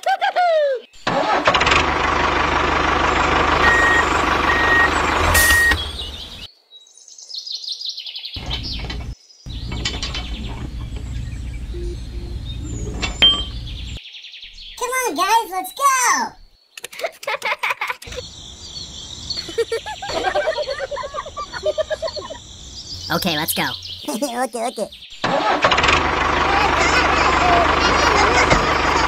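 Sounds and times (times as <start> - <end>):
tractor engine running: 1.0 - 6.5, 8.4 - 14.0, 25.2 - 29.0
birds chirping: 2.9 - 25.3, 26.3 - 29.0
reversing beeps: 3.6 - 6.0.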